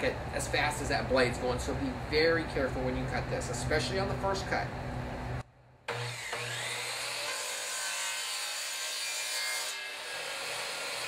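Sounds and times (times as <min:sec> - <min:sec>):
power saw whining: 0:05.9 - 0:11.0.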